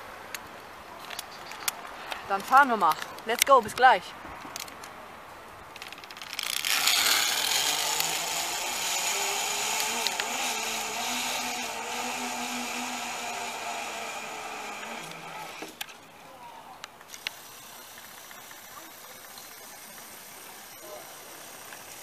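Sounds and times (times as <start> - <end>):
zipline pulleys whirring on cable: 5.8 - 16.4, 17.1 - 22.0.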